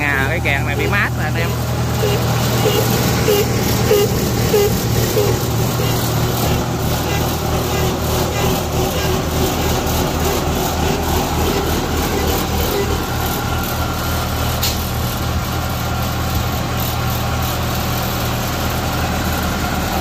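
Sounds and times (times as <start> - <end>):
diesel engine idling: 0.0 - 20.0.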